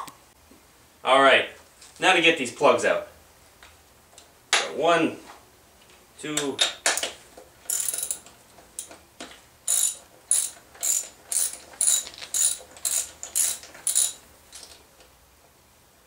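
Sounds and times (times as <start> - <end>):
ratchet and socket clicking: 7.7 - 9.0, 9.7 - 14.8.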